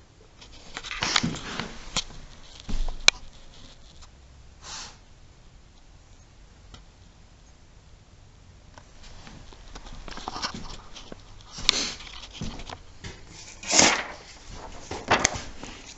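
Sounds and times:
faint rustling and clicks: 0.4 - 4.2, 8.7 - 15.9
short breath-like hiss: 4.6 - 5.0, 11.6 - 12.0.

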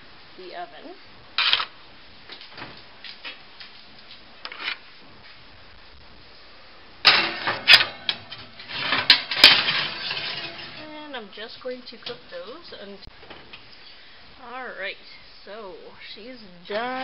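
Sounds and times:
pizza stone clattering on oven rack: 7.1 - 10.9.

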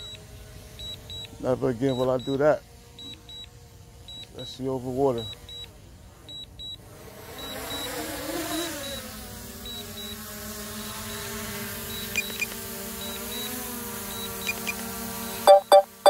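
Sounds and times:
short high warning beeps: 15.5 - 16.0.

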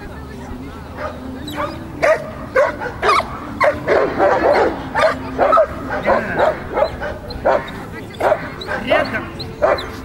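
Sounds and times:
dog barking in high yips: 9.6 - 10.0.

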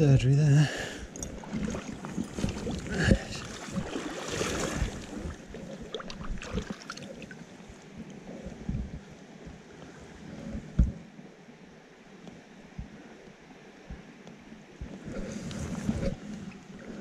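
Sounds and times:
river water rushing: 1.2 - 7.6.

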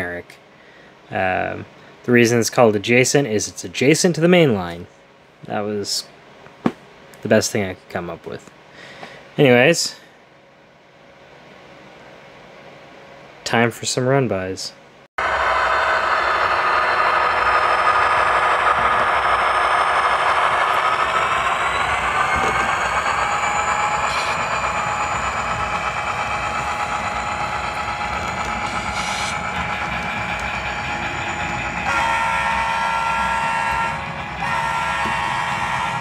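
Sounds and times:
model diesel engine sounds: 15.2 - 36.0
train horn: 31.2 - 36.0.

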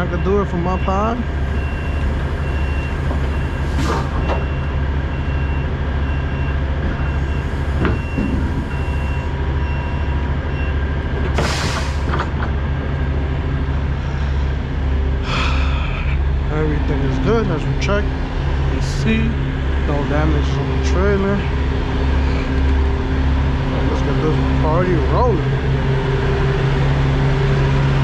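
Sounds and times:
distant reversing alarm beeping: 0.0 - 10.9
diesel trucks idling: 0.0 - 28.0.

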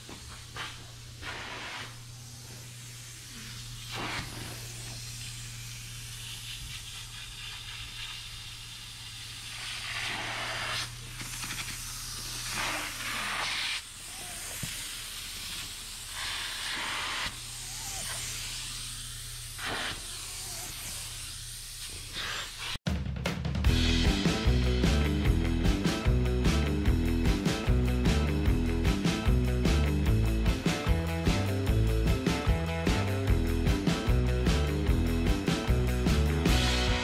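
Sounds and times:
upholstery tool suction hissing: 0.0 - 22.8.

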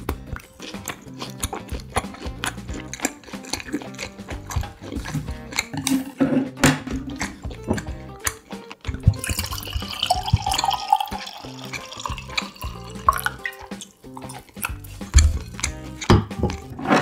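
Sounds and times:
background music: 0.0 - 17.0
wine pouring into a glass: 9.2 - 13.4.

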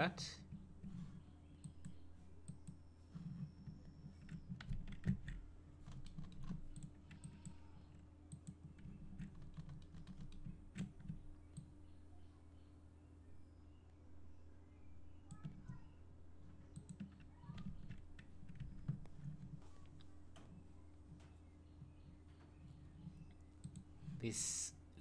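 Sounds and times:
steady low hum: 0.0 - 25.0
keyboard and mouse clicks: 1.6 - 7.6, 8.3 - 11.7, 16.7 - 20.6, 23.0 - 23.9.

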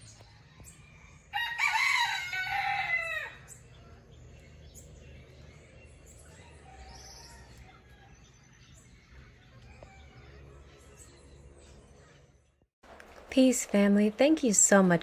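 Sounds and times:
rooster crowing: 0.9 - 3.5.

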